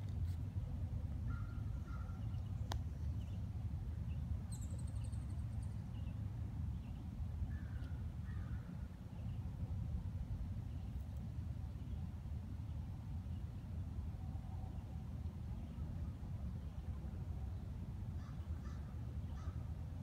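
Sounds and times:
faint bird calls: 1.2 - 2.6, 18.2 - 19.7
caw-like bird calls: 18.2 - 19.6.

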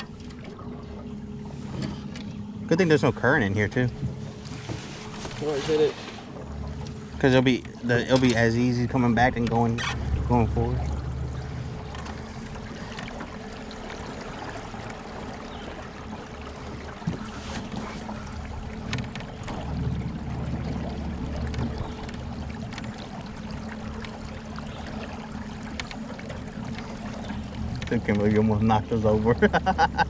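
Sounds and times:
boat motor hum: 0.0 - 30.0
water lapping along hull: 0.0 - 30.0
knock on boat: 16.7 - 22.3.

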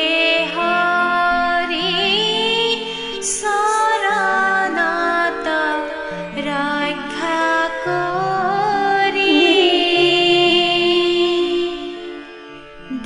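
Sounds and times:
person singing with vibrato: 0.0 - 12.2, 12.8 - 13.0
held accompanying notes: 8.0 - 13.0.

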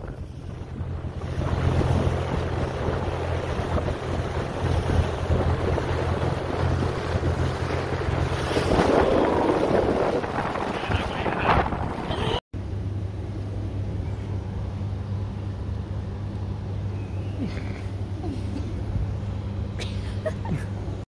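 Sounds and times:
water rushing from hull: 0.0 - 12.4
wind buffeting on microphone: 0.0 - 12.4
motorboat engine hum: 0.0 - 21.0.

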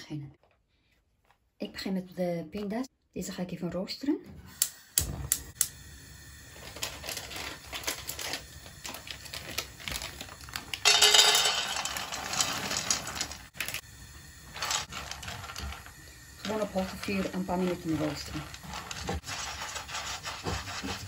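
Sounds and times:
peanuts rattling into a pan: 6.6 - 21.0.

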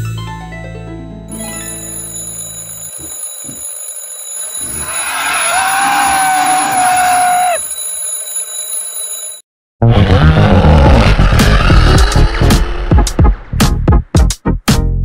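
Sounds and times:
alarm clock ringing: 1.4 - 9.4
wailing creature cry: 4.7 - 7.6.

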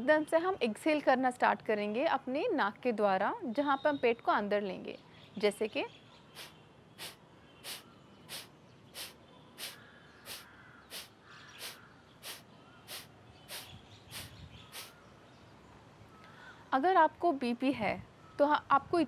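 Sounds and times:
forceful exhalations through nose: 6.4 - 15.0.

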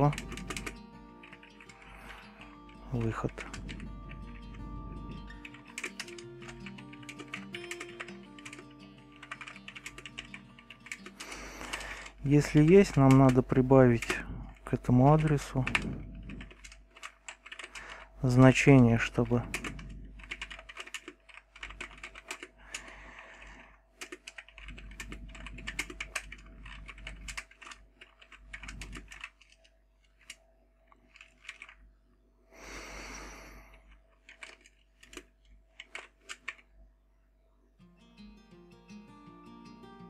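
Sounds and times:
plucked guitar music: 0.0 - 11.2, 37.8 - 40.0.

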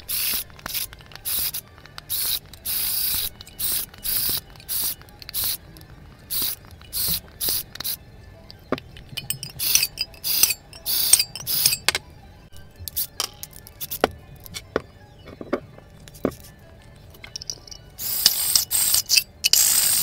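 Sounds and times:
cordless drill boring metal can: 0.2 - 5.6, 9.2 - 11.9, 17.4 - 20.0
sharp metallic clicks: 6.4 - 12.0.

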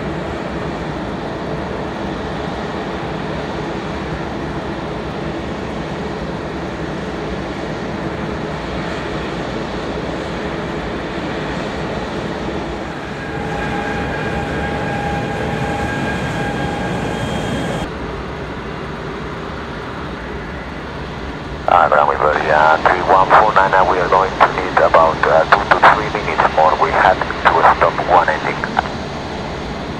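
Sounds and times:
jet engines running: 0.0 - 29.9
high-pitched whine: 12.7 - 17.9.

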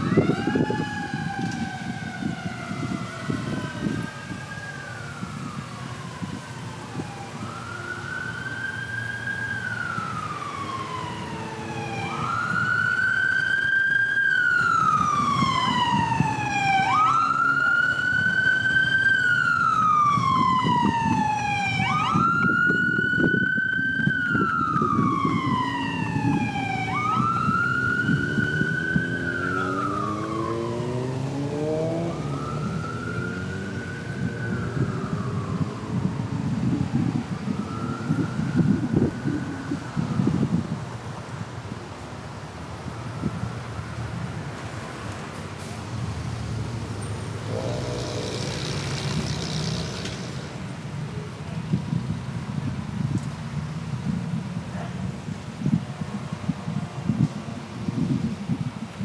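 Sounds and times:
fire truck siren wailing: 0.0 - 41.4, 54.0 - 59.0.

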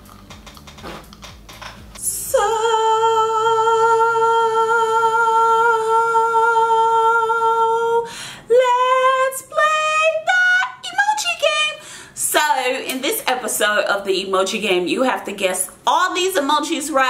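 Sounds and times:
woman singing: 2.0 - 17.0.

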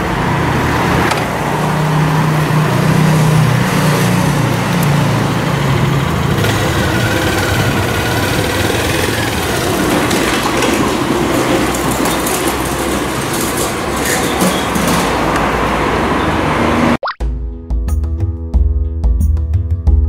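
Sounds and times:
motorcycle engines revving: 0.0 - 17.0
engine crackling: 2.4 - 15.6.

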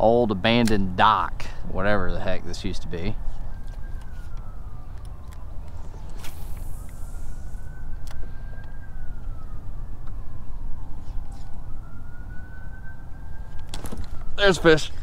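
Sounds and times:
faint wailing siren: 0.0 - 15.0.

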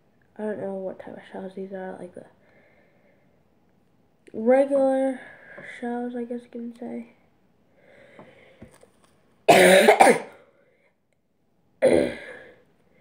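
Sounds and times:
girl coughing: 9.5 - 10.4, 11.8 - 12.4.

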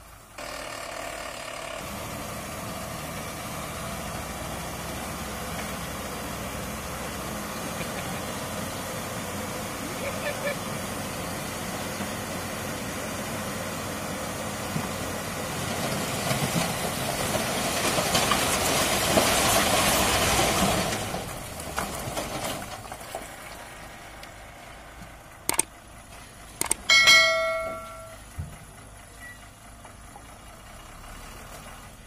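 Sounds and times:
diesel lorry engine running: 0.0 - 32.0
clicks and chime sound effect: 26.6 - 28.2.

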